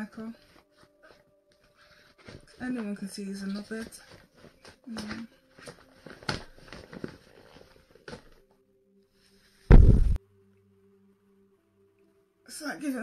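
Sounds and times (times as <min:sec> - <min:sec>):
plastic crinkling and rustling: 0:00.4 - 0:08.5
gloved hand knocking on camera: 0:09.7 - 0:10.2.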